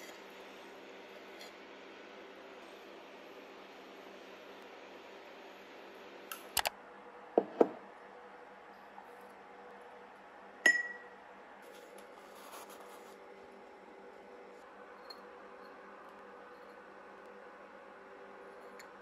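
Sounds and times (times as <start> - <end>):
low room hum: 0.0 - 19.0
ceramic or glass clink: 10.6 - 11.1.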